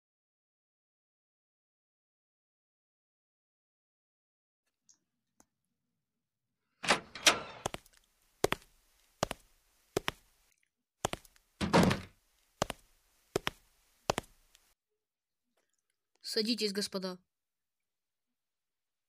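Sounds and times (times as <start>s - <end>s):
door opening: 6.8s - 7.8s, 11.6s - 12.2s
door shutting: 6.8s - 7.8s, 11.6s - 12.2s
footsteps on a hard floor: 7.6s - 10.3s, 11.0s - 11.3s, 11.9s - 14.5s.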